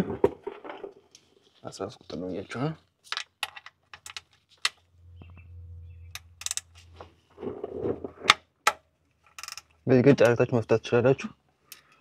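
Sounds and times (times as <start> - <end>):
low hum: 4.9 - 8.0
socket wrench clicking: 9.4 - 9.7.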